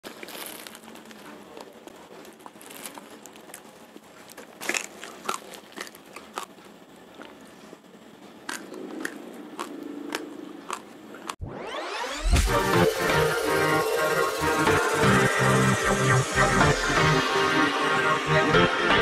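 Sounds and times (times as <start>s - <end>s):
plastic sack crinkling: 0.0s - 6.4s
rice grains crunching while chewing: 0.0s - 7.7s, 8.4s - 11.4s.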